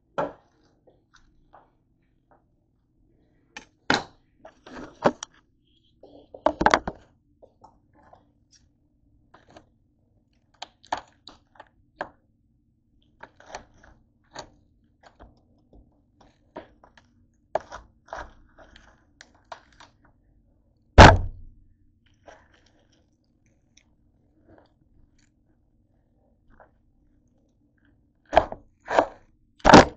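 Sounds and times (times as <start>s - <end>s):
loud thunk on cutting board: 21.0s - 21.5s.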